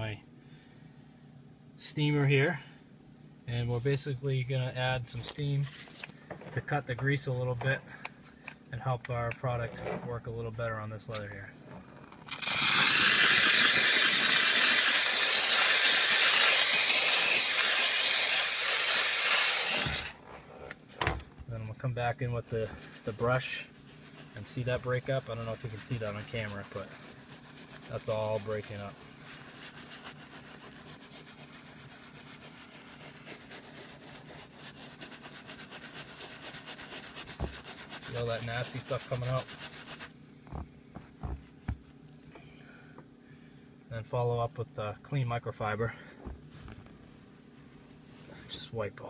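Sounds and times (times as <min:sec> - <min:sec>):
steam cleaner hissing: 0:12.3 - 0:20.2, 0:22.6 - 0:40.0
brush scrubbing leather: 0:22.3 - 0:42.0.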